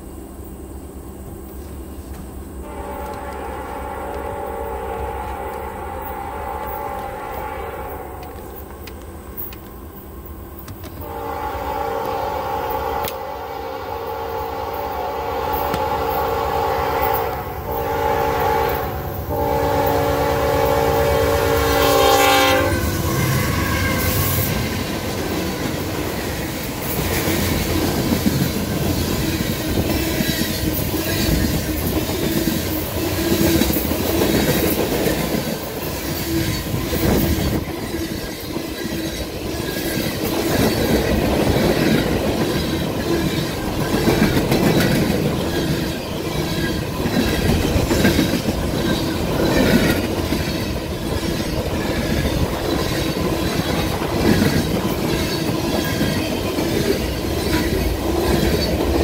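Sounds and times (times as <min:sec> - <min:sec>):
train horn blasts: 0:02.6 - 0:08.6, 0:11.0 - 0:25.0
train wheels clacking on rails: 0:14.0 - 0:59.0.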